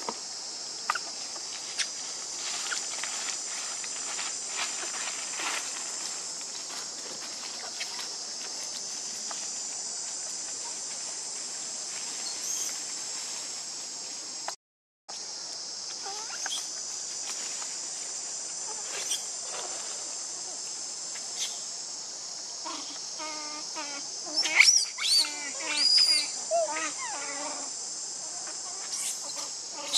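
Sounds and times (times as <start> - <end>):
insect chorus droning: 0.0 - 29.9.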